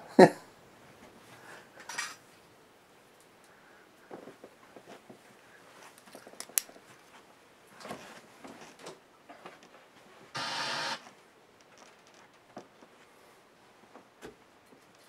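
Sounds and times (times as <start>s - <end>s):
handling clicks and rustles: 4.0s - 10.0s, 11.0s - 13.0s
loud static buzz from speaker: 10.3s - 11.2s.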